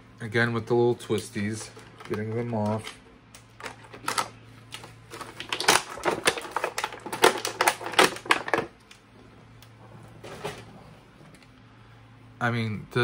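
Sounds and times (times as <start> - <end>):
plastic packaging and twist ties crackling: 3.6 - 9.0.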